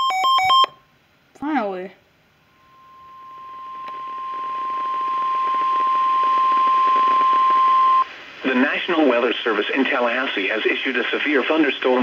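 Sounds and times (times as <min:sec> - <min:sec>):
weather radio alarm tone: 0:02.6 - 0:08.1.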